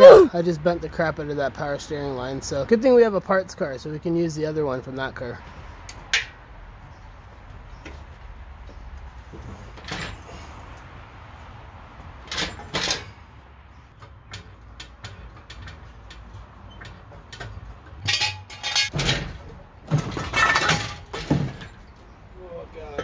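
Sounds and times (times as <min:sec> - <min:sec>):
metal clanking and scraping: 0:09.3 - 0:10.7, 0:12.2 - 0:13.3, 0:13.9 - 0:22.1.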